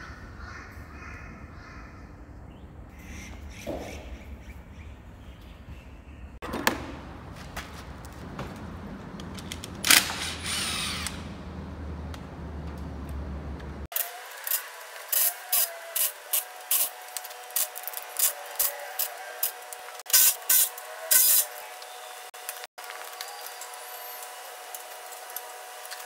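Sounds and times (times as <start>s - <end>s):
cordless drill bursts: 9.9s - 11.3s.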